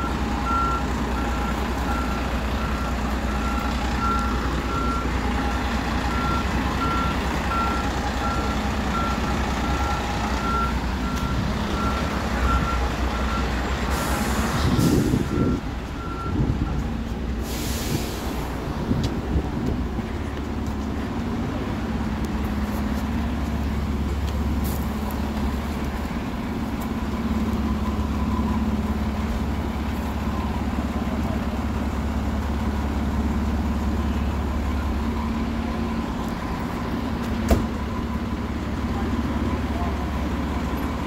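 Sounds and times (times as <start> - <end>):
diesel engine drone: 0.0 - 41.0.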